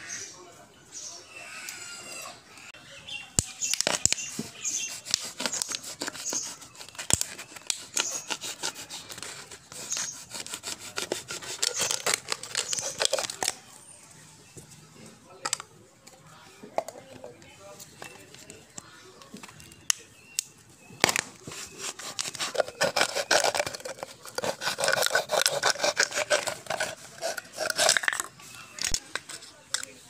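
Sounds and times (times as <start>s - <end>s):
knife cutting plastic bottle: 3.4s - 13.6s, 21.0s - 29.9s.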